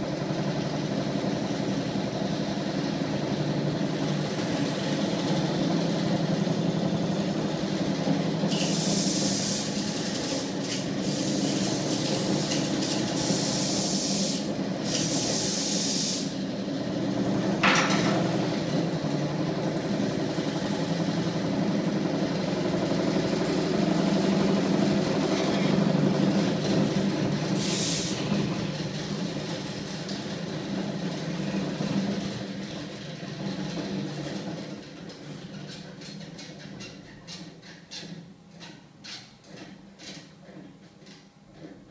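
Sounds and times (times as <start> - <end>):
flywheel machine humming: 0.0 - 41.9
hiss bursts: 8.5 - 11.6, 12.2 - 16.4, 27.5 - 28.3.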